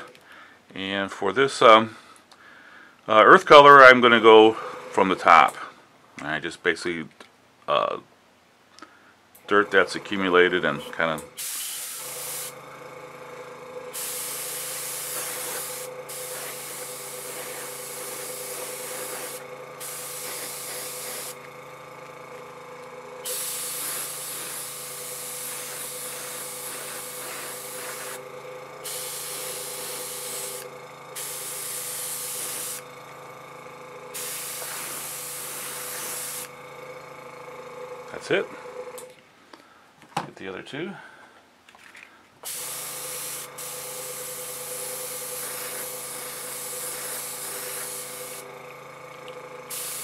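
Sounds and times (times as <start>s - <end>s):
airbrush spraying hiss: 11.3s - 12.6s, 13.9s - 21.5s, 23.2s - 32.8s, 34.1s - 36.5s, 42.5s - 48.5s, 49.7s - 50.0s.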